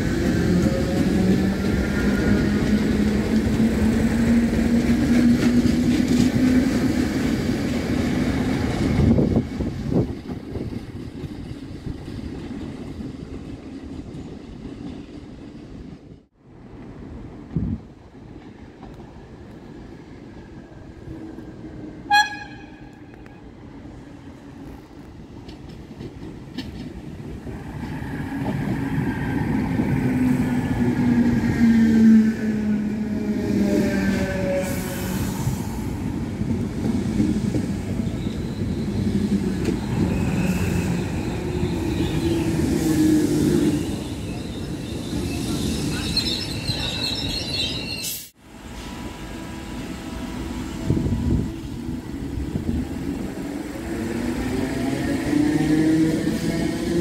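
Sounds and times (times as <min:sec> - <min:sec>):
train wheels rumbling on rails: 0:00.0 - 0:57.0
electric train braking to a stop: 0:37.8 - 0:51.2
high squeal: 0:37.9 - 0:48.4.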